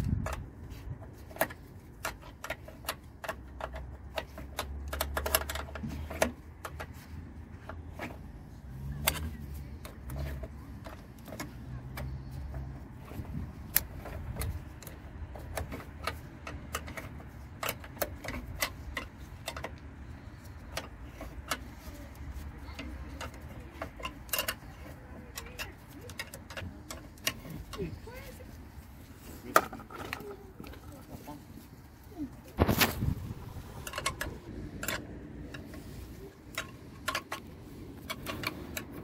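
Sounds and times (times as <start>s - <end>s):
spanner ratcheting metallic clicks: 1.2s - 7.0s, 8.0s - 27.8s.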